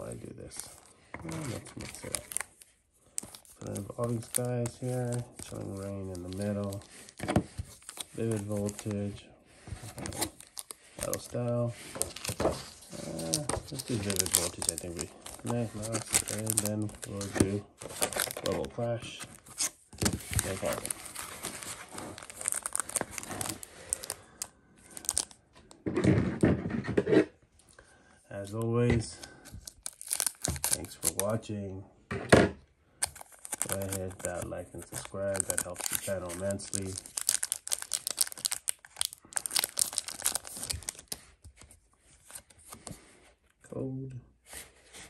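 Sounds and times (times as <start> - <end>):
foil wrappers crinkling: 1.3 - 9.1, 10.0 - 18.8, 19.4 - 25.4, 29.5 - 31.4, 33.0 - 41.3.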